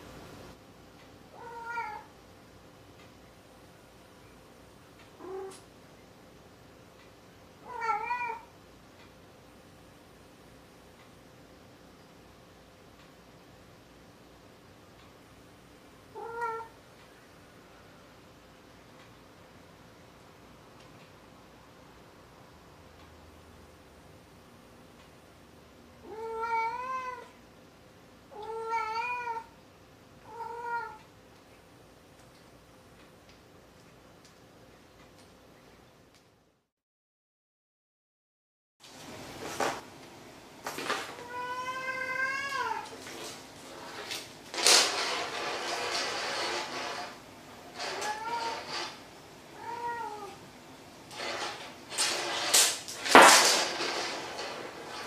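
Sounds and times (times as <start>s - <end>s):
cat meowing: 1.4s - 2.1s, 5.2s - 5.6s, 7.6s - 8.5s, 16.2s - 16.8s, 26.0s - 27.3s, 28.3s - 29.6s, 30.3s - 31.0s, 41.2s - 42.9s, 49.6s - 50.4s.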